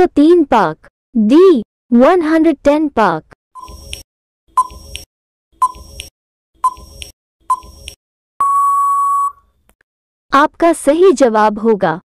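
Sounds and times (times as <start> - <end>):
electronic beep: 3.6 - 4.0, 4.6 - 5.0, 5.6 - 9.5
countdown timer ticks: 4.6 - 8.0.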